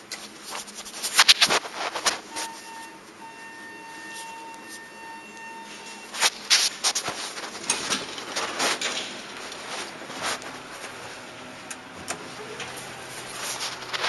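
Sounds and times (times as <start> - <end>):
clothing rustle: 0.0 - 4.9, 5.7 - 11.5, 12.3 - 14.0
footsteps: 0.3 - 2.9, 5.7 - 11.3.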